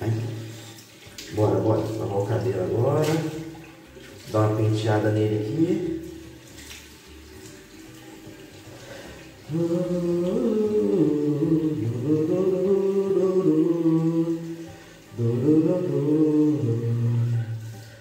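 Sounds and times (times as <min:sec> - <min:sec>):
person singing slow melody: 0:09.1 - 0:18.0.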